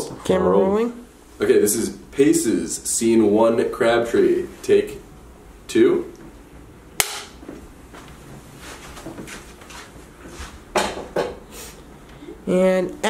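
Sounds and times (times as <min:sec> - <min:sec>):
clapperboard snapping shut: 0:07.0 - 0:07.4.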